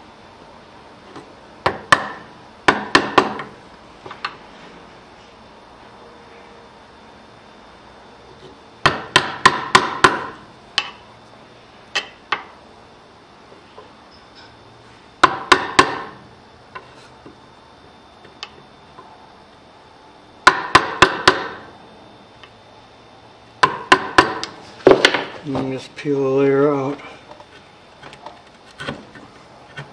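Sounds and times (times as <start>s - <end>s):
chisel striking wood: 1.6s - 3.5s, 8.8s - 11.0s, 15.2s - 16.2s, 20.4s - 21.6s, 23.6s - 25.3s.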